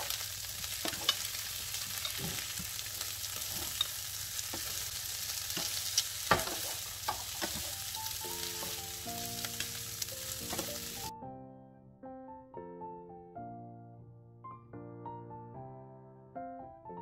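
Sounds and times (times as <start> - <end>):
wooden spatula scraping a pan: 0.0 - 9.6, 10.4 - 11.1
food sizzling in a frying pan: 0.0 - 11.1
soft piano music: 0.0 - 17.0.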